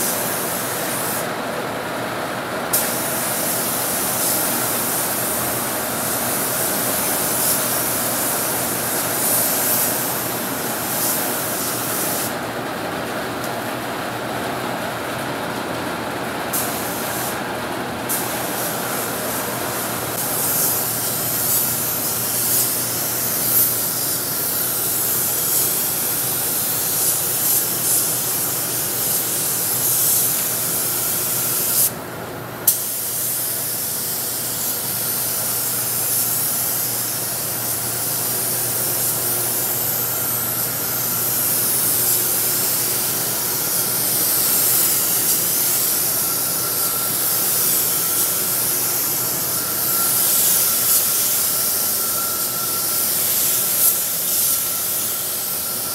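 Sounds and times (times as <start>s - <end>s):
paint spray gun hissing: 0.0s - 1.3s, 2.7s - 12.4s, 16.5s - 17.4s, 18.1s - 32.0s, 32.7s - 55.9s.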